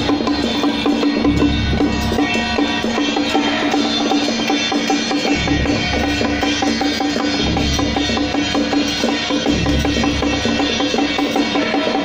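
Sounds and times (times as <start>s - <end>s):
percussion music with drums: 0.0s - 12.0s.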